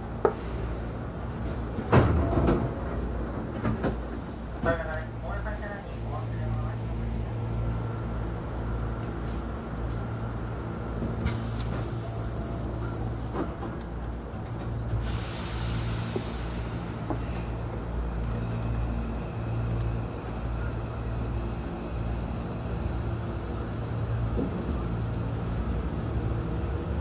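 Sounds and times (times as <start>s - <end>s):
electric train rumble and hum: 0.0s - 27.0s.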